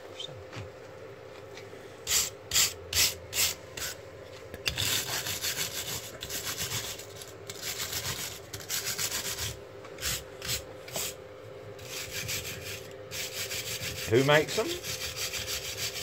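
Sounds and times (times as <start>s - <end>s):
wire brush scrubbing metal: 11.8s - 16.0s.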